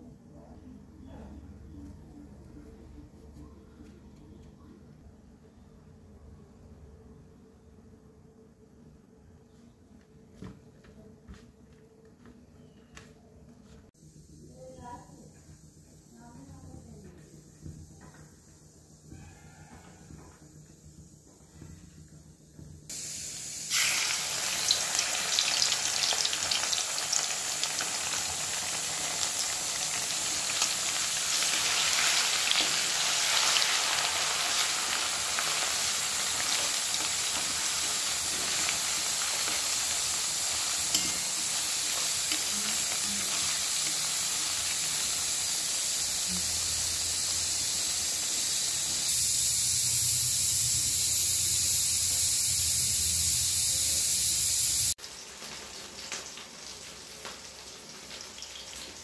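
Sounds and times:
potato sizzling in hot oil: 22.9 - 59.0.

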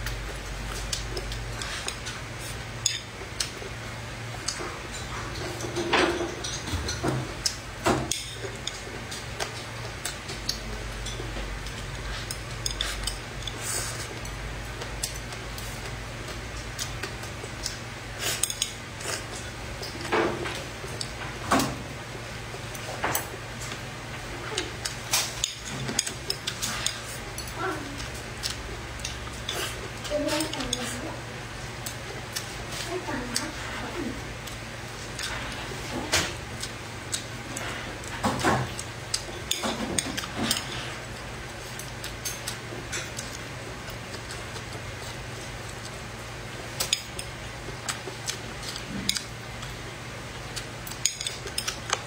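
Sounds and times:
chewing: 0.0 - 5.8, 6.4 - 20.1, 22.5 - 52.0
steady low hum: 0.0 - 52.0
chopsticks clicking on a plate: 24.6 - 30.9, 46.8 - 49.7.

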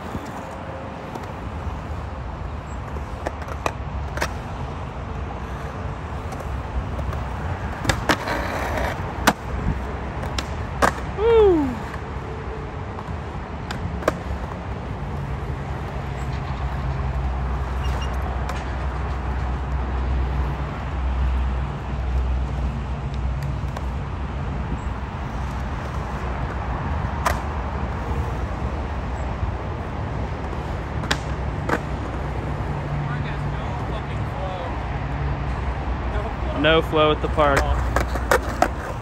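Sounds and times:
skateboard clacking on concrete: 0.0 - 1.9, 2.8 - 4.5, 5.4 - 12.0, 13.0 - 16.0, 22.1 - 24.0, 25.4 - 28.4, 30.4 - 32.5, 37.3 - 39.0
skateboard wheels rolling on concrete: 0.0 - 39.0.

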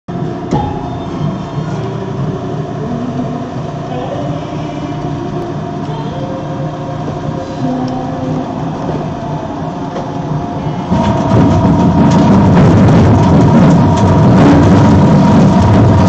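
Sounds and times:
shredder grinding: 10.9 - 16.0.

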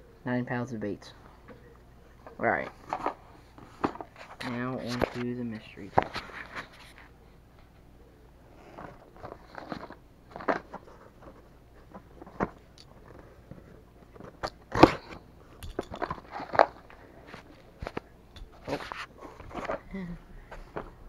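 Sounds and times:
cardboard box handling noise: 8.6 - 15.2.

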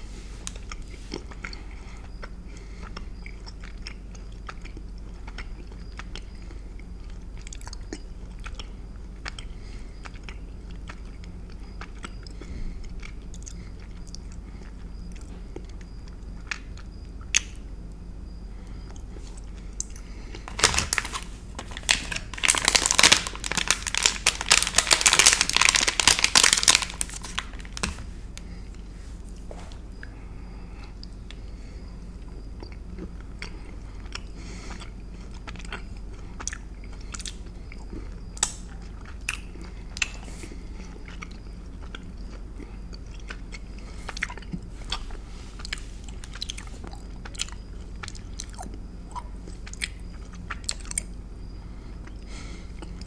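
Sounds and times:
mouth-closed chewing: 0.4 - 17.6, 18.3 - 53.0
plastic wrapper crinkling: 20.4 - 28.5.

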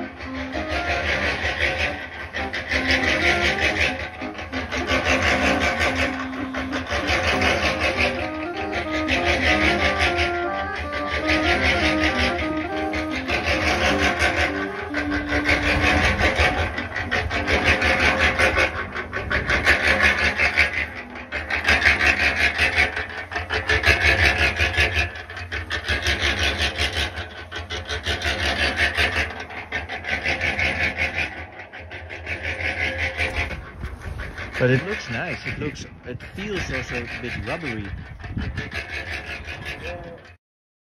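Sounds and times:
rasping grinding noise: 0.0 - 40.4.

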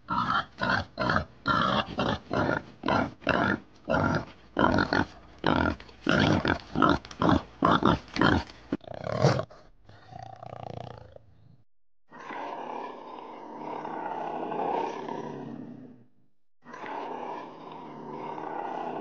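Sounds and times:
pigs grunting: 0.0 - 11.3, 16.7 - 19.0
steady animal sound: 0.0 - 19.0.

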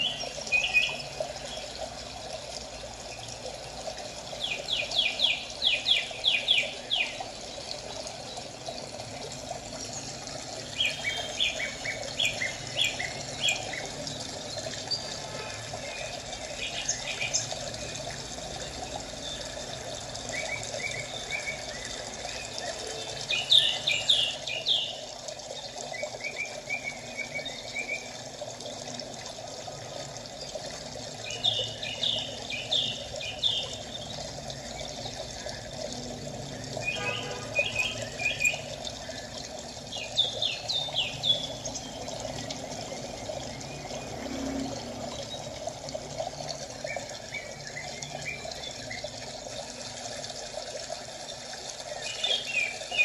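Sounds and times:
water trickling: 0.0 - 53.0.

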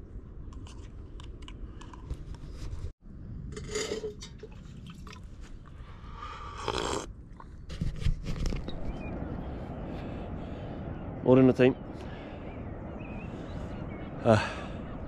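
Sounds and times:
person slurping from mug: 6.4 - 7.1.

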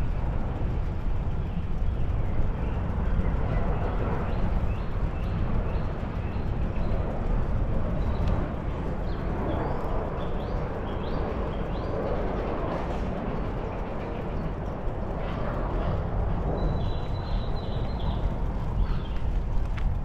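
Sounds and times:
bicycle tyres rolling: 0.0 - 20.0
wind buffeting microphone: 0.0 - 20.0
bird chirping: 16.6 - 19.2.

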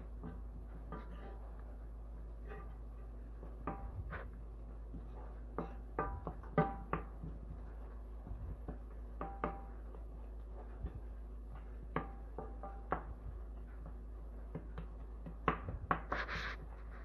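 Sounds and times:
low steady hum: 0.0 - 17.0
spoon knocking against pan: 8.7 - 9.8.

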